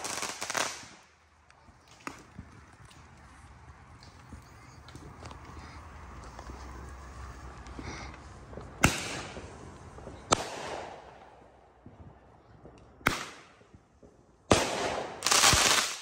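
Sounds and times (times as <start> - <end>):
fireworks bangs with echo: 0.0 - 1.0, 8.7 - 12.1, 13.0 - 16.0
crackling firework bursts: 0.0 - 1.2, 7.1 - 12.2, 14.4 - 16.0.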